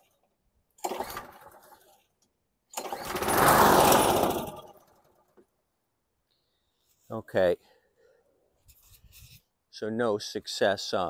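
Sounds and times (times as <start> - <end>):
mower engine turning over: 0.8 - 2.0, 2.7 - 5.3.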